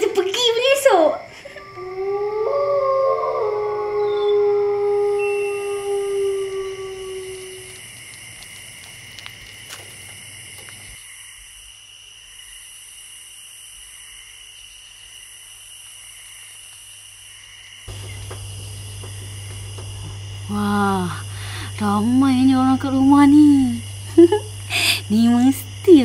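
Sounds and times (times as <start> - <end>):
night insects chirring: 0.0 - 26.0
steady low hum: 1.3 - 11.0, 17.9 - 26.0
howl: 1.4 - 7.8.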